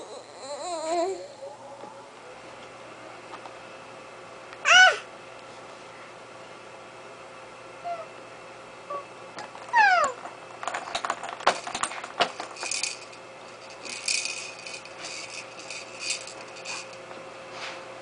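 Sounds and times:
baby squealing: 4.7s - 5.1s, 9.8s - 10.2s
plastic toys clacking and rattling: 9.4s - 17.0s.

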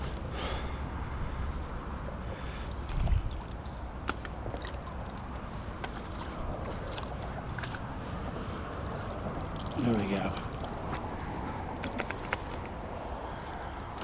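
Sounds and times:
wind rumble on microphone: 0.9s - 9.7s.

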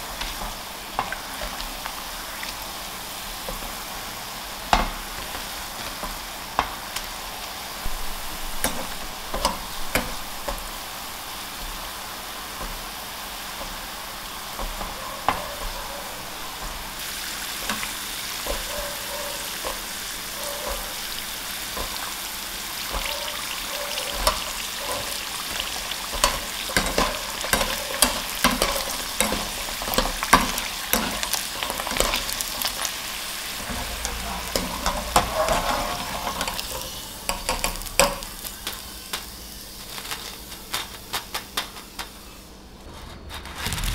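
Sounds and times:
dough deep-frying in oil: 0.0s - 43.9s
wire skimmer stirring: 33.5s - 38.3s.

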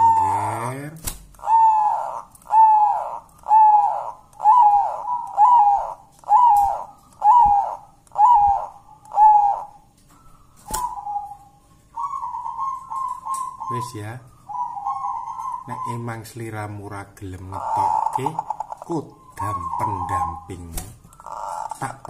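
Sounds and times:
dove cooing: 0.0s - 22.0s.

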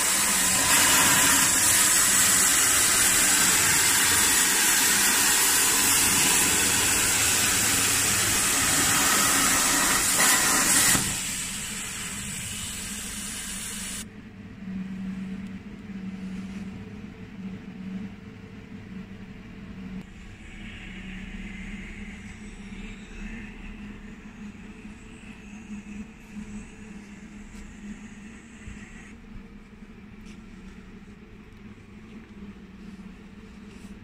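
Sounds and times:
plasma torch hissing: 0.0s - 14.0s
faint low hum: 14.0s - 34.0s.

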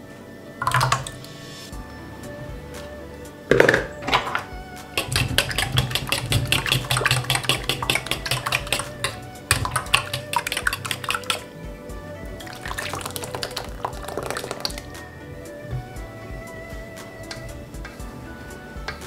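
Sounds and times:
fork clinking in metal bowl: 5.0s - 11.4s.

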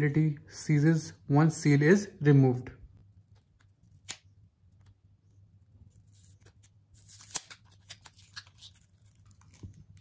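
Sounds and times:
card and plastic crinkling: 5.9s - 10.0s
tearing crackle: 5.9s - 10.0s.

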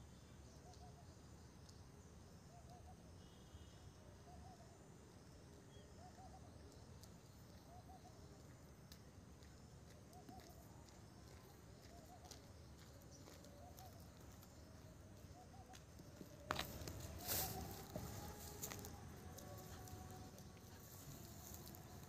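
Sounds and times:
faint ticks: 6.1s - 14.5s.

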